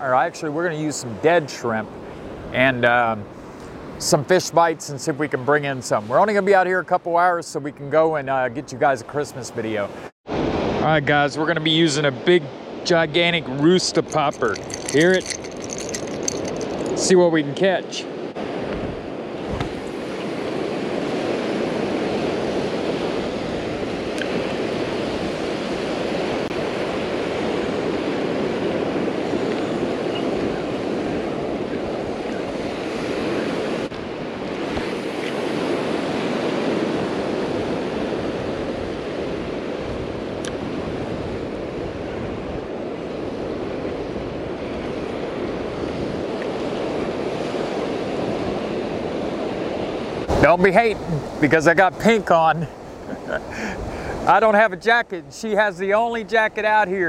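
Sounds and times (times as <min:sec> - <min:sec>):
small surf waves breaking: 0:08.8 - 0:57.0
wind on microphone: 0:18.4 - 0:51.4.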